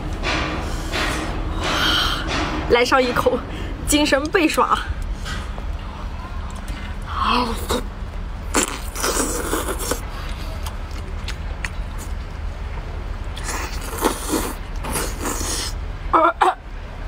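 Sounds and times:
steady low rumble: 0:00.0 - 0:17.0
slurping and chewing: 0:07.6 - 0:12.3, 0:13.4 - 0:15.8.

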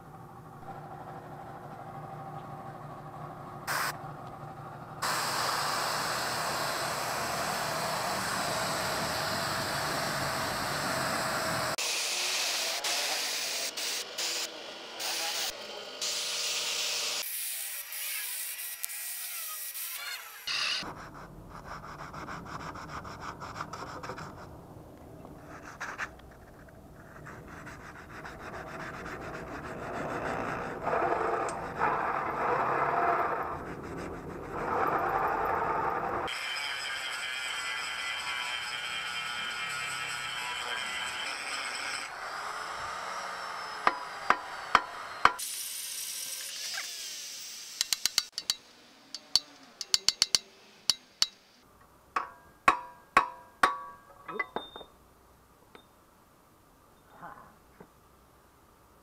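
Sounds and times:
paint spray gun hissing: 0:03.7 - 0:03.9, 0:05.0 - 0:08.2
rough scraping noise: 0:25.4 - 0:36.7.

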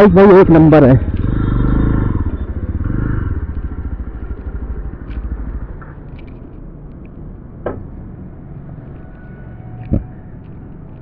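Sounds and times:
motorcycle engine idling: 0:00.2 - 0:06.3.

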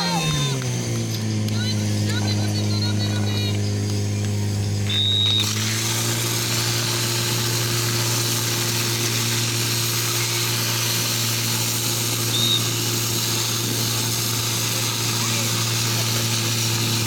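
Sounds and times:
pump engine running: 0:00.0 - 0:17.0
short high beep: 0:04.9 - 0:05.6, 0:12.3 - 0:12.9
water jets spraying hiss: 0:04.9 - 0:17.0.

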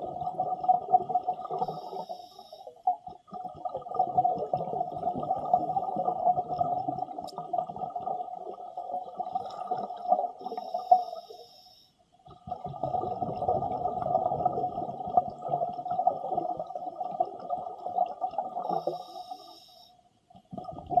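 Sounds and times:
diver breathing through regulator: 0:01.6 - 0:02.7, 0:10.5 - 0:12.0, 0:18.6 - 0:20.0.

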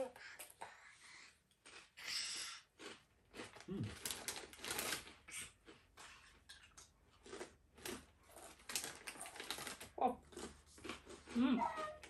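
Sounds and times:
crisps being crunched: 0:02.8 - 0:05.8, 0:07.2 - 0:11.5
crisp packet rustling: 0:03.9 - 0:05.2, 0:07.8 - 0:10.0.

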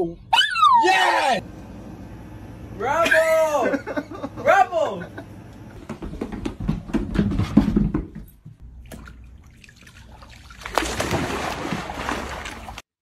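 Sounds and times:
knocks and thumps: 0:05.8 - 0:08.6
water sloshing and splashing: 0:08.6 - 0:12.9
dog splashing into pool: 0:08.8 - 0:12.9.

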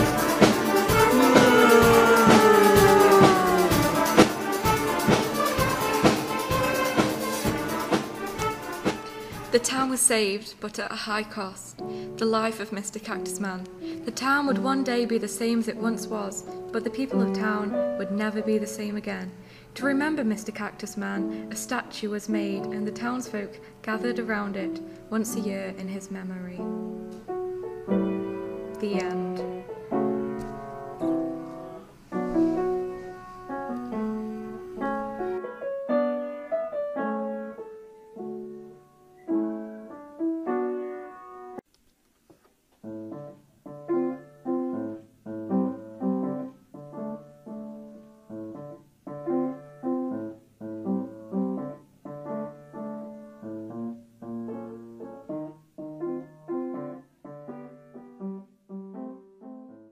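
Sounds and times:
piano music: 0:00.0 - 0:09.3, 0:13.2 - 0:18.9, 0:26.6 - 0:41.6, 0:42.8 - 0:59.9.

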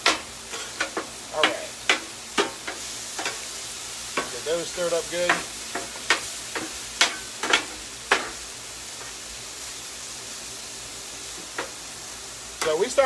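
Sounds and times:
food sizzling on a griddle: 0:00.0 - 0:13.0.

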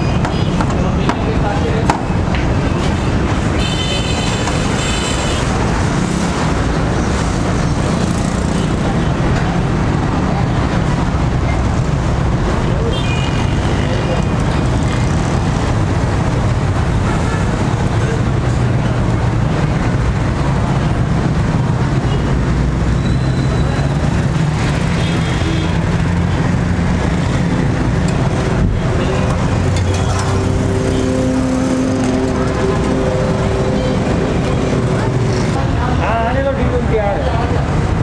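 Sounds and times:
road traffic engines: 0:00.0 - 0:38.0.

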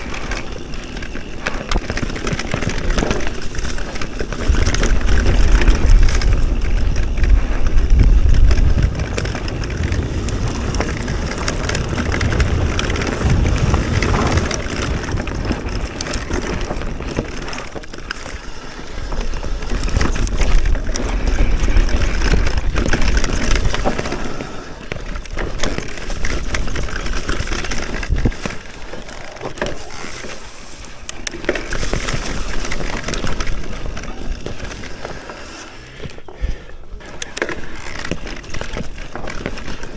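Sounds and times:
bike rattling and knocking: 0:00.0 - 0:39.9
tyres running over trail: 0:00.0 - 0:39.9
wind buffeting microphone: 0:01.4 - 0:28.7.

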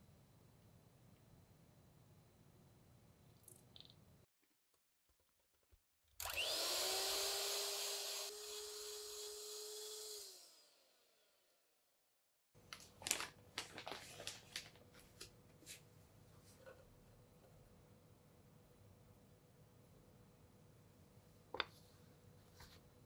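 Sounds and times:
electric hand mixer whine: 0:06.2 - 0:11.1
plastic bag rustling: 0:12.7 - 0:15.2.

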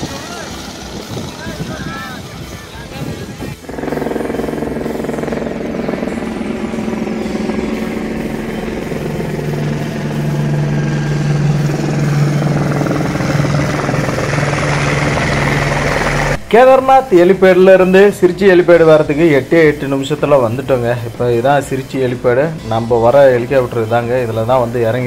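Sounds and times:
helicopter rotor and turbine: 0:00.0 - 0:25.0.

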